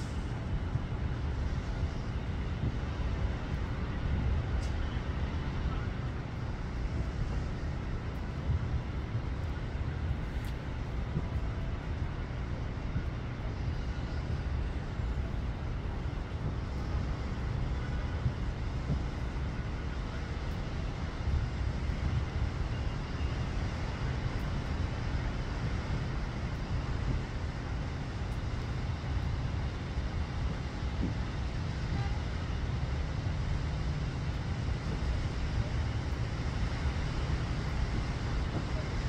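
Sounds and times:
rain hissing: 0.0 - 39.0.

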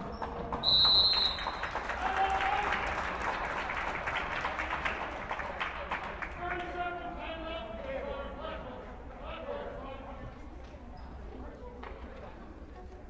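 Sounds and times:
spectators applauding: 0.0 - 6.8
referee's whistle: 0.6 - 1.7.

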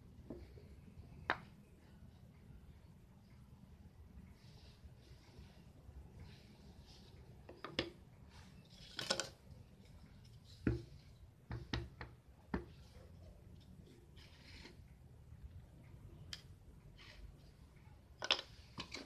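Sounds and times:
wooden pieces knocking: 18.2 - 19.0.

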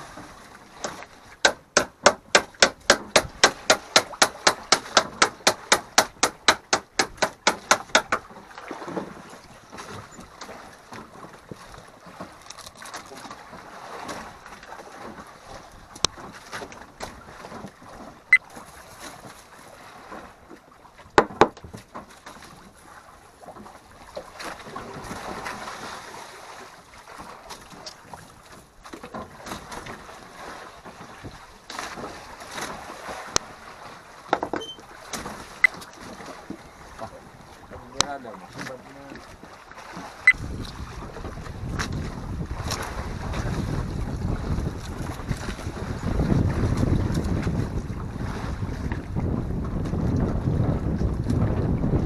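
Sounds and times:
sea noise: 0.0 - 52.0
wind buffeting microphone: 40.3 - 52.0.

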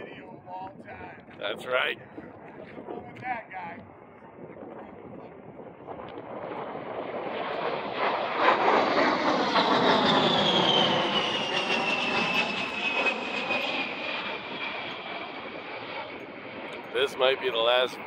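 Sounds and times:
jet flyby roar: 3.4 - 18.0
high jet whine falling in pitch: 6.1 - 18.0.

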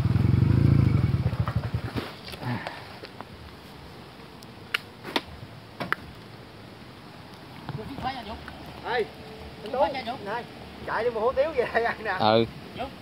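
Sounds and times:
motorcycle engine dying: 0.0 - 2.1.

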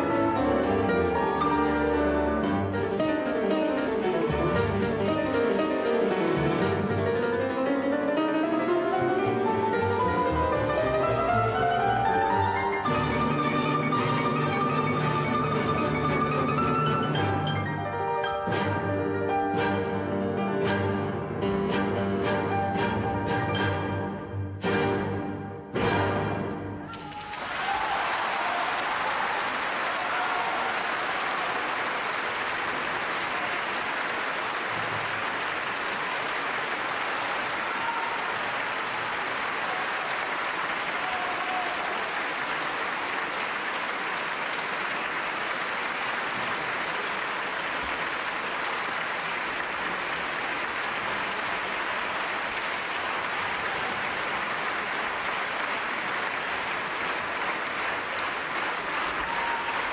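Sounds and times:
audience applauding: 26.9 - 59.9.

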